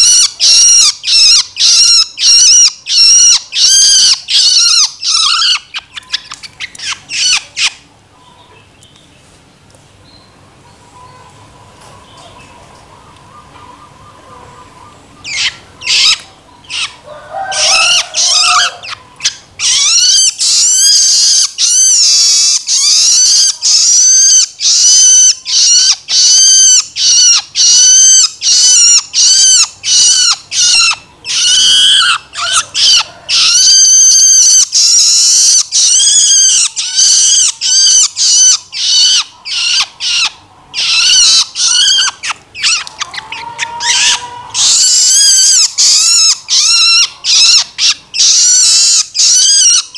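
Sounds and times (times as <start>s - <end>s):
bird begging call: 13.2s - 49.9s.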